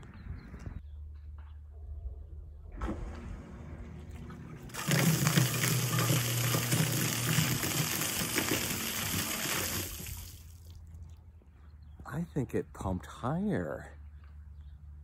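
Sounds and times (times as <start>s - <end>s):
pump motor humming: 3.6s - 10.8s
water rushing up a pipe: 4.7s - 10.8s
water spray splashing on pavement: 4.7s - 10.8s.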